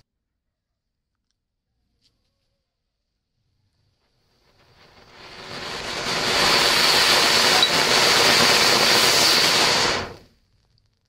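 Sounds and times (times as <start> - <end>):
firework fountain hissing: 4.0 - 10.4
thin high tone: 4.6 - 10.2.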